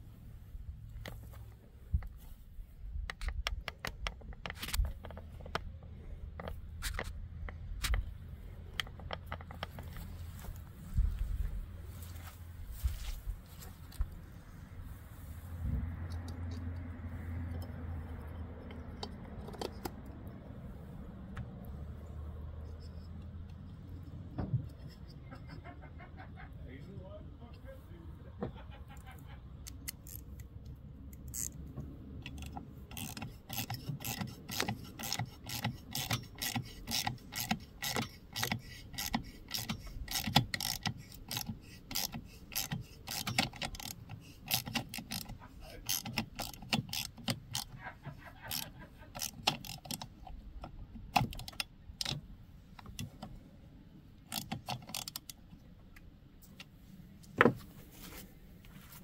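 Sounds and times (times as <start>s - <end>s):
ratchet wrench clicking: 29.6s - 30.5s, 31.1s - 52.2s, 54.3s - 55.4s.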